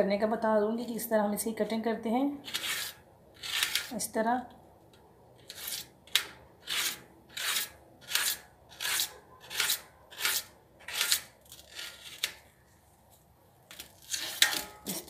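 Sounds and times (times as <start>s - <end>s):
knife slicing potato: 5.4s - 12.4s.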